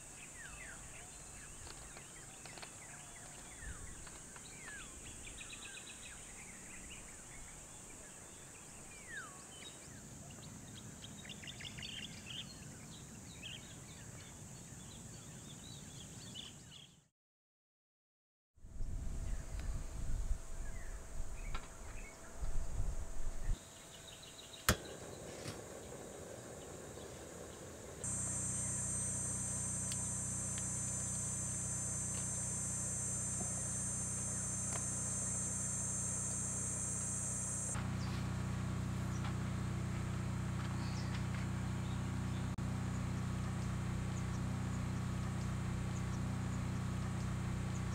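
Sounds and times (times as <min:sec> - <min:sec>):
insects buzzing: 0:00.0 - 0:10.9, 0:20.2 - 0:43.0
low steady hum: 0:26.0 - 0:47.9
sharp click: 0:28.0 - 0:37.8.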